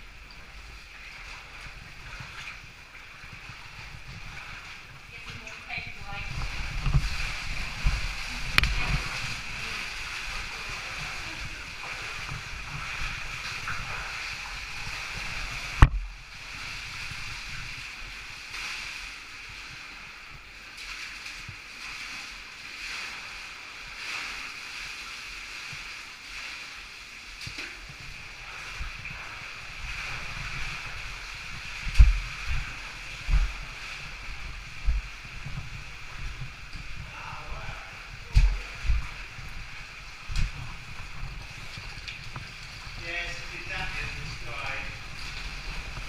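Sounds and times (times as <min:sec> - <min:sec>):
water running through cave: 0:00.0 - 0:46.0
low thumps: 0:31.7 - 0:43.0.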